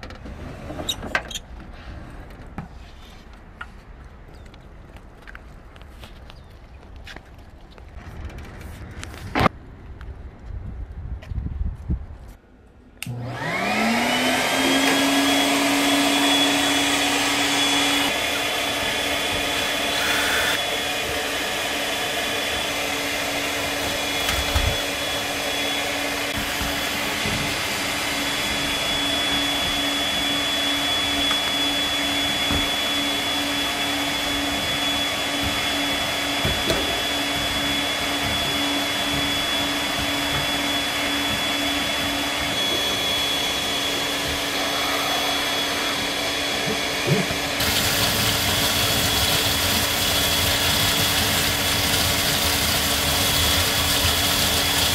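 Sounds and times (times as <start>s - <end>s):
vacuum motor humming and whining: 13.0s - 54.9s.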